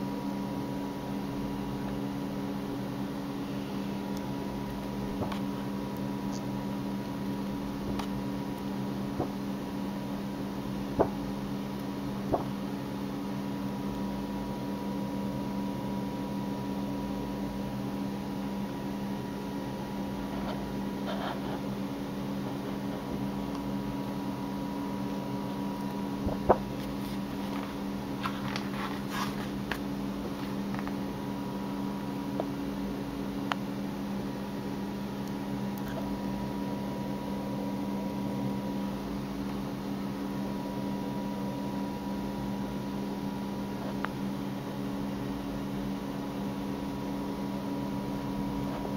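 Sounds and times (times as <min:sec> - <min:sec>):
steady low hum: 0:00.0 - 0:48.9
glossy book pages rustling: 0:26.3 - 0:31.0.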